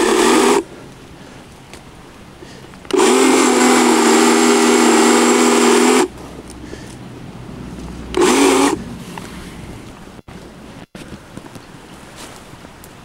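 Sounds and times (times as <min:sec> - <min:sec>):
power saw cutting brush: 0:00.0 - 0:00.6, 0:02.9 - 0:06.1, 0:08.0 - 0:08.8.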